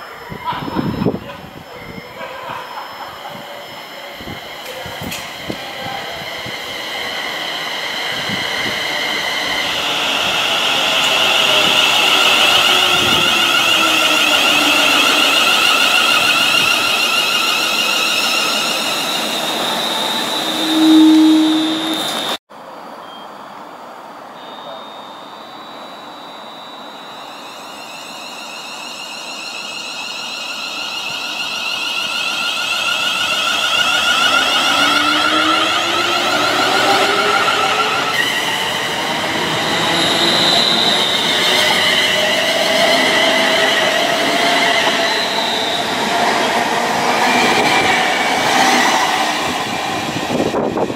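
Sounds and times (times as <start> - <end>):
electric train motors whining: 0.0 - 22.4, 25.6 - 50.9
brief low tone: 22.9 - 23.6.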